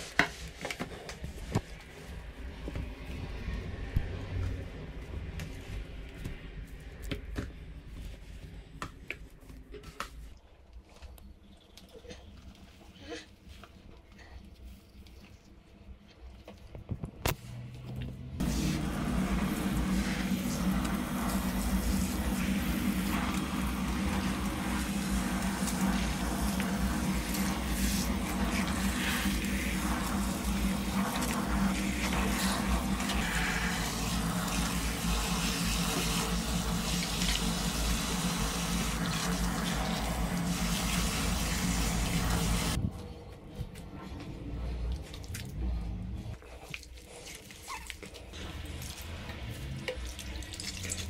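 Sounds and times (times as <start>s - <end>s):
shower water running into basin: 18.4s - 42.8s, 47.0s - 51.0s.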